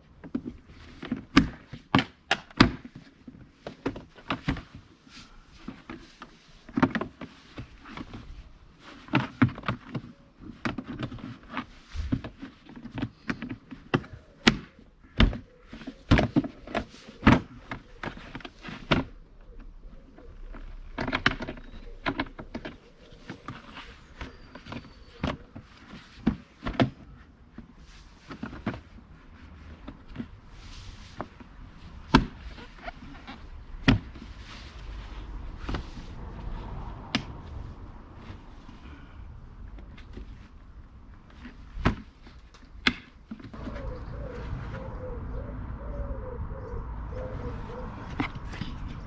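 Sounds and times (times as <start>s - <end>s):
bird calling with wavering note: 43.6s - 48.0s.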